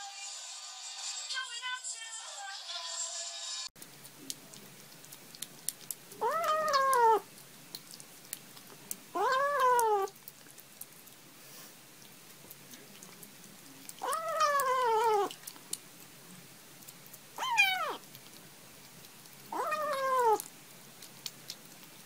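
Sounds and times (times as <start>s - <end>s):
faint clicks of eating: 3.8s - 22.0s
kitten meowing: 6.2s - 7.2s, 9.1s - 10.1s, 14.0s - 15.3s, 17.4s - 18.0s, 19.5s - 20.5s.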